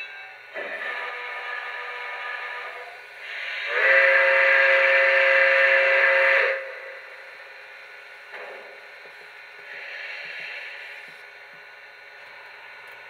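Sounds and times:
model train steam whistle: 0.0s - 7.1s.

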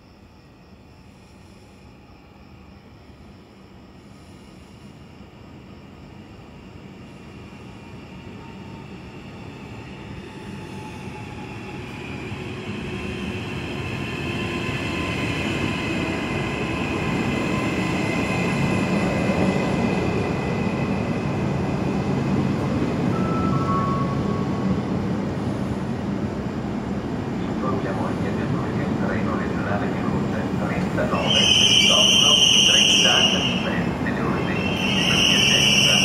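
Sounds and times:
train wheel and rail noise: 0.0s - 36.0s
high squeals: 31.0s - 36.0s.

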